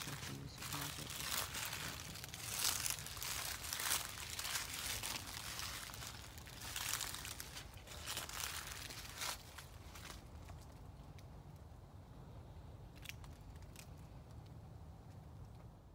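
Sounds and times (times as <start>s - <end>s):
footsteps crunching dry leaves: 0.0s - 10.8s.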